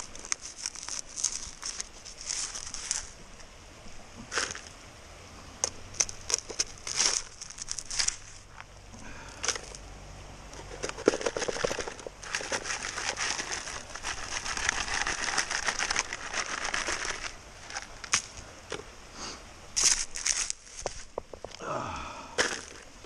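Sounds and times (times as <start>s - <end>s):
shovel scraping gravelly dirt: 0.0s - 3.2s, 4.2s - 4.7s, 5.6s - 9.8s, 10.5s - 18.4s, 19.8s - 21.4s, 22.4s - 22.9s.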